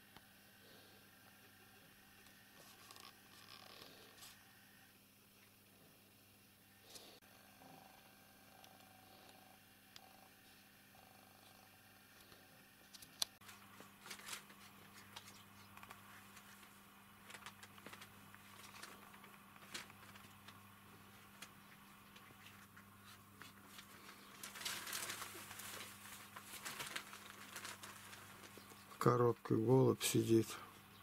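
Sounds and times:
steady low hum: 0.0 - 31.0
paper rustling: 12.9 - 28.9.

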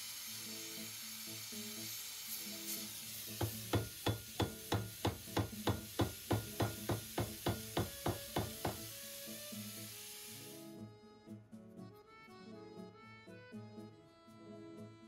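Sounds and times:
background music: 0.4 - 15.0
hammer striking steel: 3.4 - 8.9.

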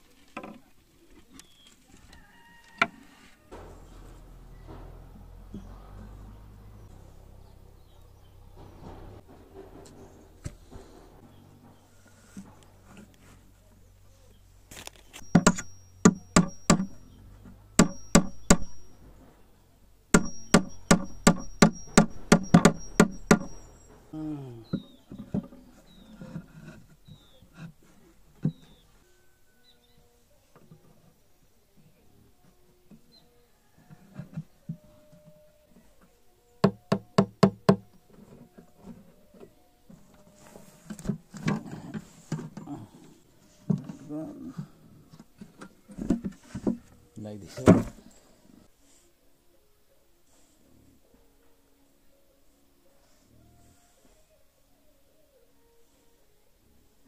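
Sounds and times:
faint metallic ring: 15.1 - 19.6, 20.2 - 24.9
hammer striking wood: 15.2 - 17.1, 17.8 - 18.9, 20.1 - 23.7, 36.6 - 37.8
knocks on wooden panel: 20.1 - 23.5, 36.6 - 37.8
wood rubbing: 20.2 - 28.8.

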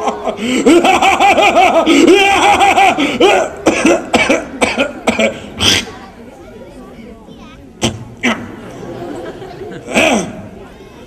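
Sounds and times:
children laughing: 0.0 - 5.4, 8.2 - 11.0
sharp cough-like bursts: 3.0 - 5.9, 9.9 - 10.4.

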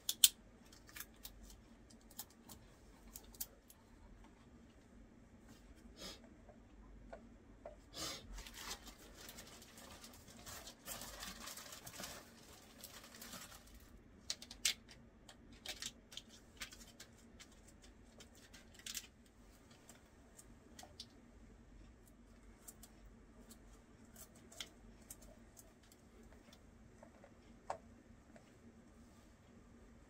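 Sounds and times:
tape rustling and rubbing: 8.3 - 13.9.

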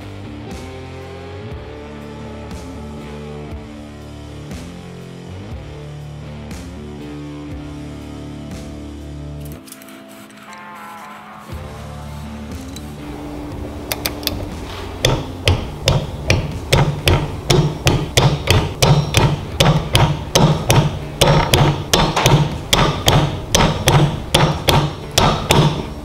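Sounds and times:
ratcheting wrench clicking: 13.9 - 14.5.

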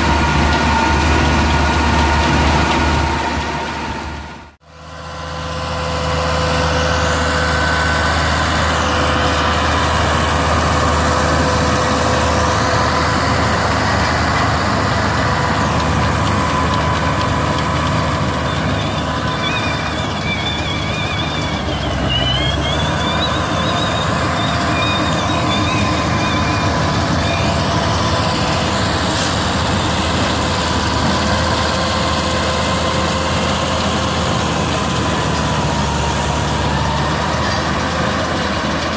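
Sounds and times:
baler machinery whine: 0.0 - 38.9
tractor diesel engine running: 0.0 - 38.9.

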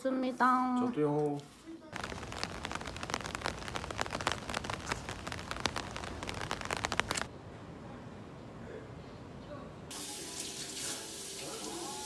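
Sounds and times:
rain on plastic umbrella: 2.0 - 7.3.

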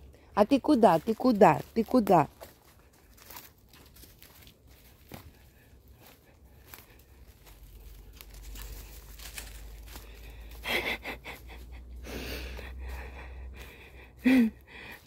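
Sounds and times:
person breathing: 5.2 - 15.0.

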